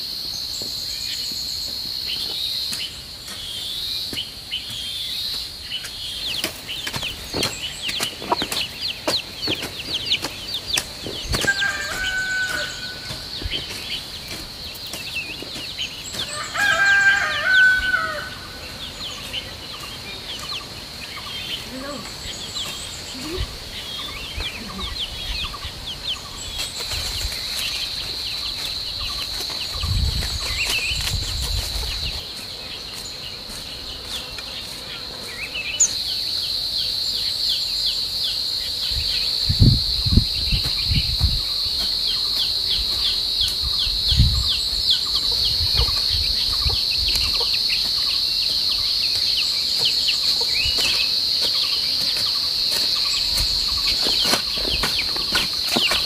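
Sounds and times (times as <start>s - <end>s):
insects shrilling: 0.0s - 56.0s
hoe chopping into soil: 54.1s - 56.0s.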